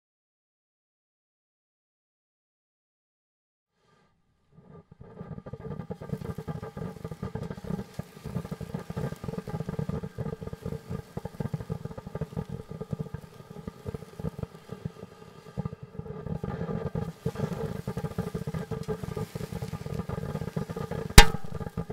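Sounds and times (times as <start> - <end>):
firework pops and crackles: 4.5 - 21.9
fountain firework rushing: 4.6 - 21.9.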